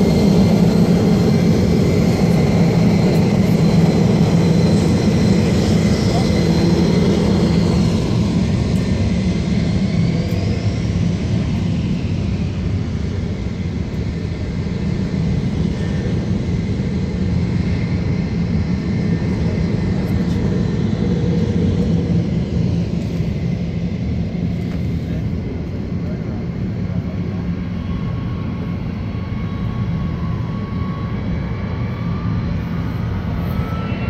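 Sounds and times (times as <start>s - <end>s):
jet engines rumbling: 0.0s - 34.0s.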